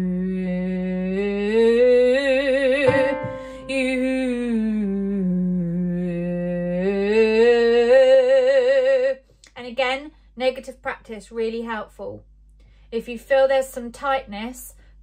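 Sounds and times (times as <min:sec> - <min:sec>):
woman singing a gliding vowel: 0:00.0 - 0:09.2
quick breath: 0:12.6 - 0:12.9.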